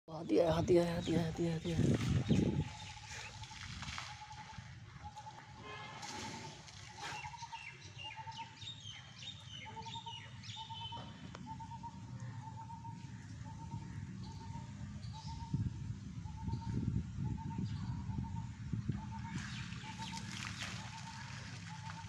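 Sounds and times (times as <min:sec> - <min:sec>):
low rumbling noise: 0:10.9 - 0:22.0
birds falling chirps: 0:19.0 - 0:22.0.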